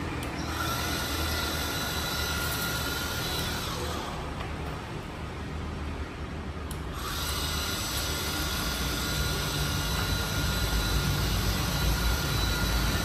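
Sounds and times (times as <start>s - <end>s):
pressure washer whine and hiss: 0.4s - 4.3s, 6.9s - 13.0s.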